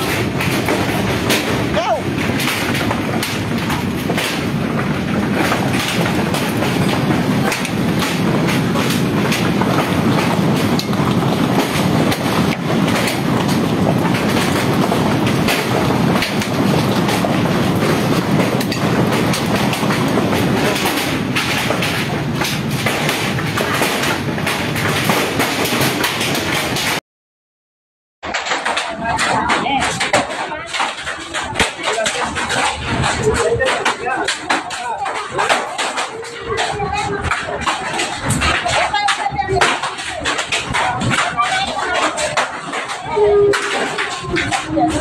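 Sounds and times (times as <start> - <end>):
continuous low rumble: 0.0 - 27.0
stones and gravel clattering down: 0.0 - 27.0, 28.3 - 45.0.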